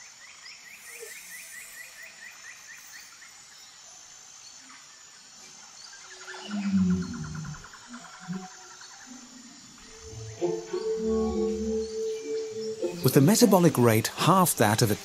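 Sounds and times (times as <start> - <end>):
high thin insect hum: 0.0 - 15.0
rapid chirping trill: 9.9 - 14.8.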